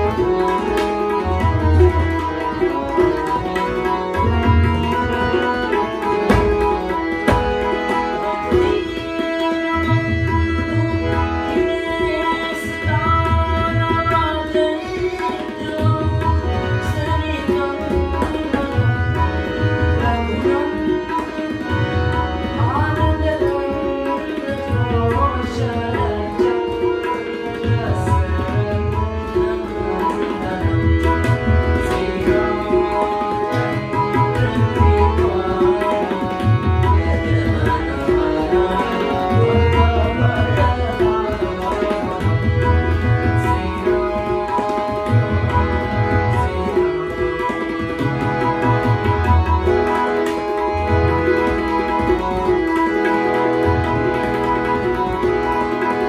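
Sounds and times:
sustained harmonium chords: 0.0s - 56.0s
man singing: 22.6s - 48.0s.

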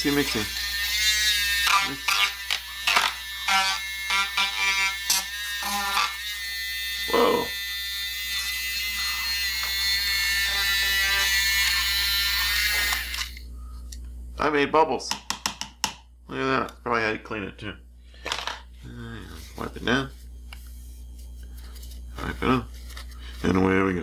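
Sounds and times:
small electric motor whirring: 0.0s - 13.5s.

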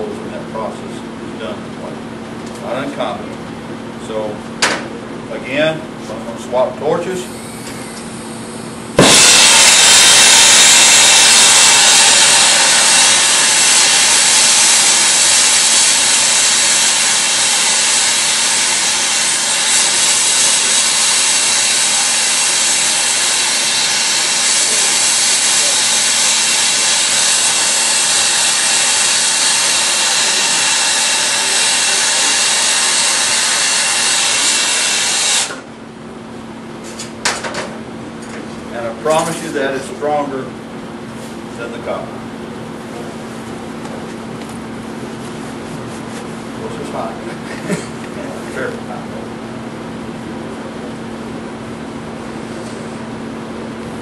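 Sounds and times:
torch flame hissing: 7.3s - 35.7s.

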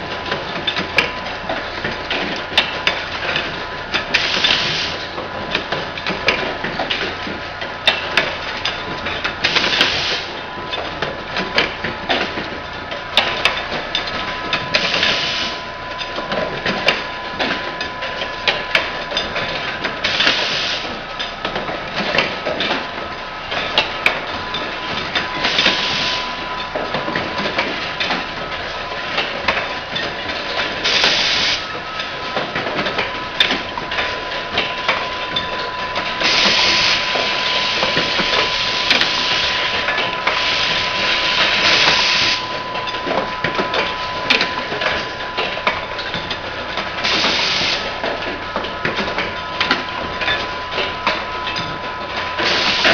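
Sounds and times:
machine clicks and knocks: 0.0s - 9.9s, 10.6s - 15.2s, 16.0s - 52.9s
steady high tone: 33.0s - 46.7s.

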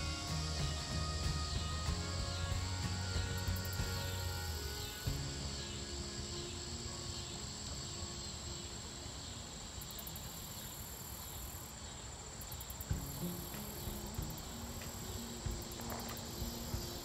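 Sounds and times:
soft background music: 0.0s - 9.5s, 12.9s - 17.0s
faint pulsing chirp: 0.0s - 17.0s
insects trilling: 0.0s - 17.0s.

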